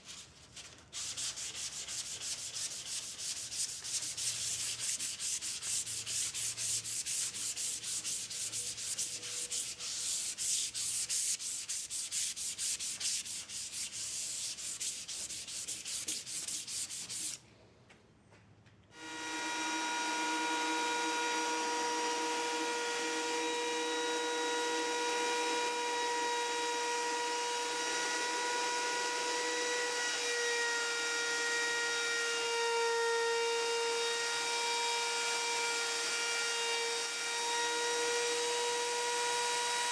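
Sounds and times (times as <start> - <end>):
hand tool rubbing on wood: 1.0 - 17.4
electric router motor whine: 19.0 - 31.1.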